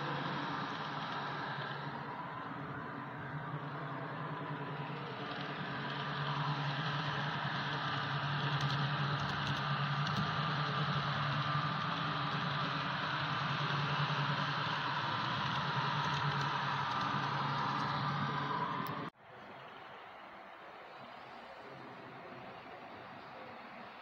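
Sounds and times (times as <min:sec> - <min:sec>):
model train motor hum: 0:00.0 - 0:19.1.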